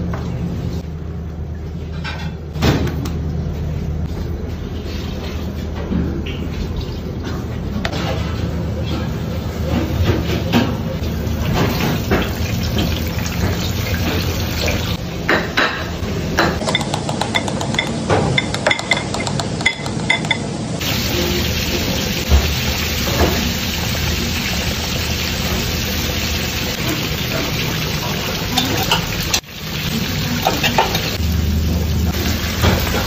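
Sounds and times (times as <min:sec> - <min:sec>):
plates and utensils clinking: 0:11.5 - 0:20.5, 0:26.8 - 0:29.4, 0:30.4 - 0:31.2.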